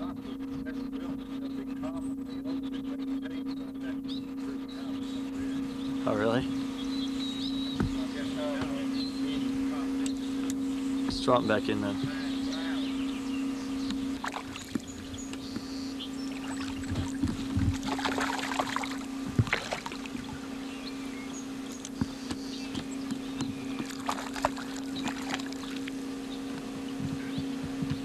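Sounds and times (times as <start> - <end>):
steady hum: 0.0 - 28.0
fish splashing: 14.2 - 15.0, 16.2 - 20.6, 23.7 - 26.0.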